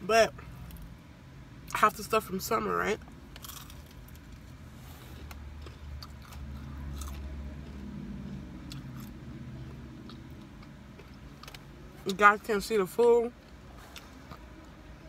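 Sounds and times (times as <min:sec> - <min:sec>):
person chewing food: 0:03.3 - 0:12.1.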